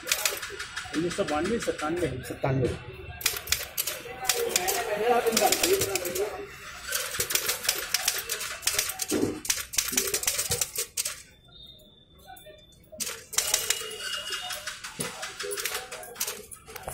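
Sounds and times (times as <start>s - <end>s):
typewriter keys clattering: 0.0s - 2.0s, 3.2s - 6.3s, 6.9s - 11.2s, 13.0s - 16.9s.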